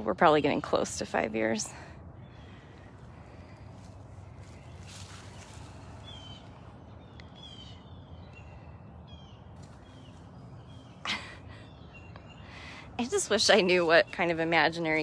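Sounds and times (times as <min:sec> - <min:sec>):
steady low rumble: 0:00.0 - 0:15.0
birds whistling and trilling: 0:04.4 - 0:15.0.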